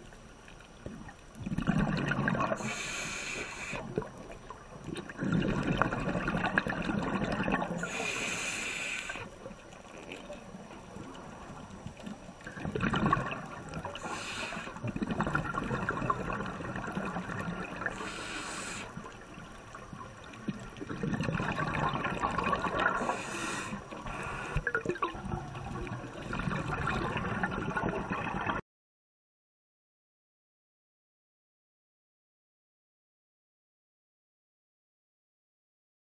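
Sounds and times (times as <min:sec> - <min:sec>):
underwater bubbling and gurgling: 0:00.0 - 0:28.6.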